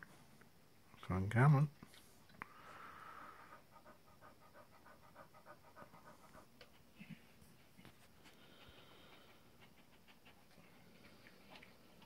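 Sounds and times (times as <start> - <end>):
dog panting rapidly: 3.5 - 12.0.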